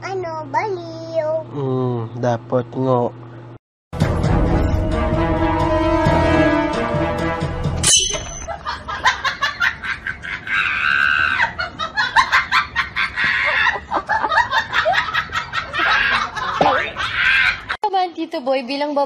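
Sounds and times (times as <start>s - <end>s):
person laughing hard: 8.5s - 17.8s.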